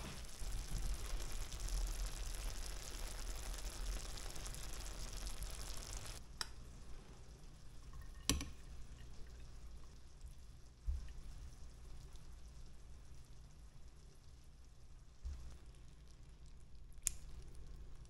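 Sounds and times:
food sizzling in a pan: 0.0 - 6.2.

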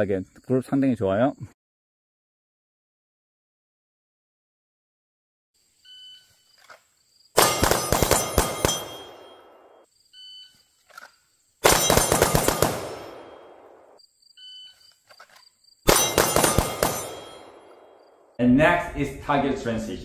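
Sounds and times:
pistol shots: 7.4 - 9.8, 11.6 - 14.0, 15.9 - 18.0
steel targets ringing: 7.4 - 9.8, 15.9 - 17.8.

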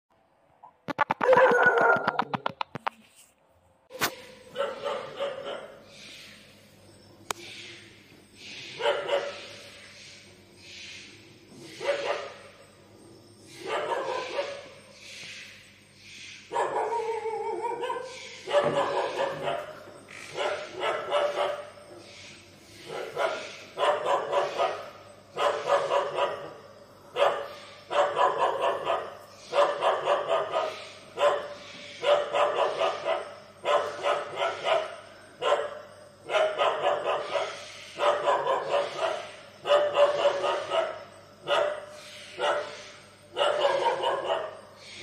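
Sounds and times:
dog barking: 1.2 - 2.3, 4.5 - 5.8, 8.8 - 9.5, 11.8 - 12.4, 13.6 - 14.8, 16.5 - 21.7, 22.8 - 44.6.

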